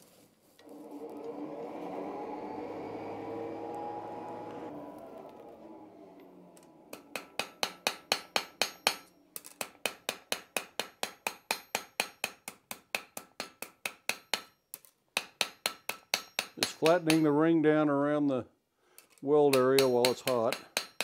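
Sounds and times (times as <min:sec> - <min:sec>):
hammer striking iron on anvil: 0:06.9 - 0:17.3, 0:19.5 - 0:21.0.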